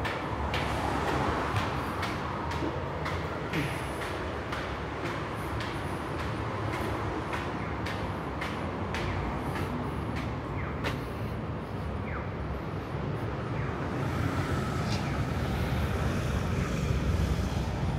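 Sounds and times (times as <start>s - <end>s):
footsteps on stone stairs: 0.0s - 12.0s
road traffic passing: 0.0s - 17.9s.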